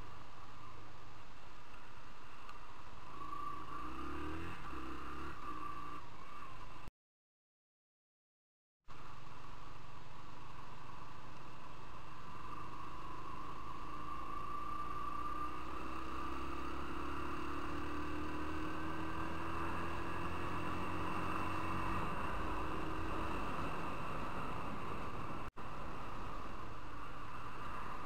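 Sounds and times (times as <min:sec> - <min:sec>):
motorcycle engine accelerating: 0:03.0 - 0:06.8, 0:12.3 - 0:25.5.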